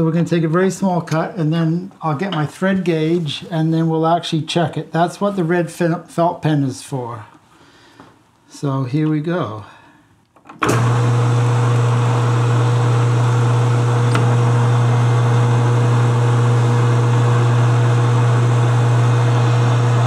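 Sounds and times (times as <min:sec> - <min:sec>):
metal lathe motor humming: 0:10.7 - 0:20.0.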